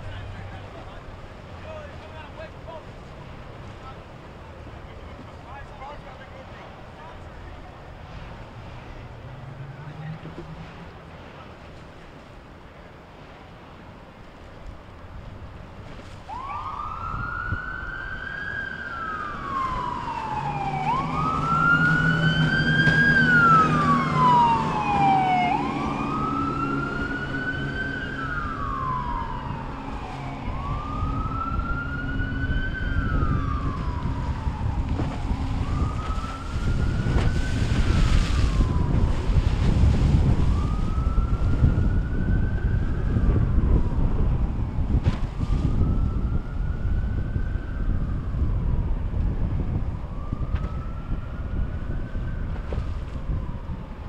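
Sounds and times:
rough rumbling noise: 0.0 - 14.0, 18.7 - 54.0
emergency siren wailing: 16.2 - 54.0.

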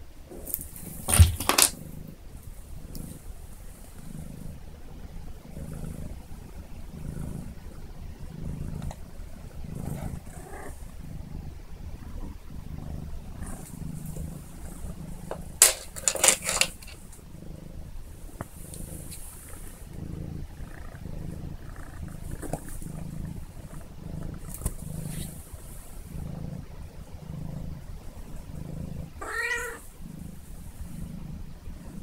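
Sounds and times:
kitten purring: 0.0 - 32.0
sharp clicks and scrapes: 15.6 - 17.0.

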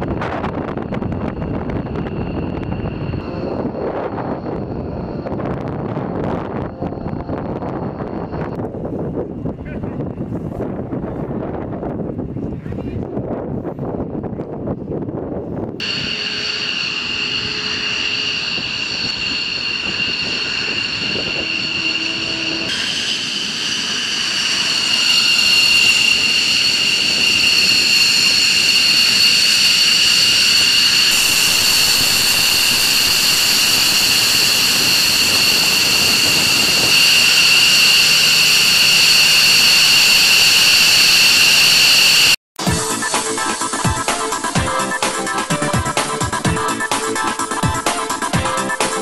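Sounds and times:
jet engines whining: 0.0 - 8.7, 15.8 - 49.0.

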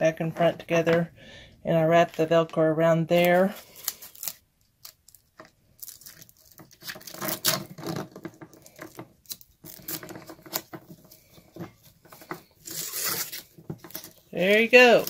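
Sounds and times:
velcro tearing: 3.2 - 7.8, 12.6 - 15.0.

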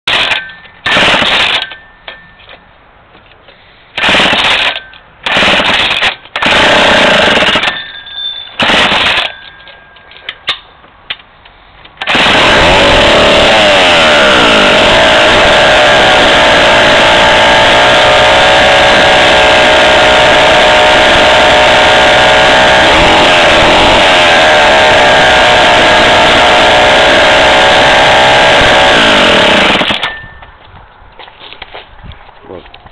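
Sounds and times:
chainsaw engine running: 0.1 - 1.6, 4.0 - 7.7, 8.6 - 9.3, 12.0 - 30.0
chainsaw engine short bursts: 0.1 - 1.6, 4.0 - 7.8, 8.6 - 9.3, 12.0 - 30.2.

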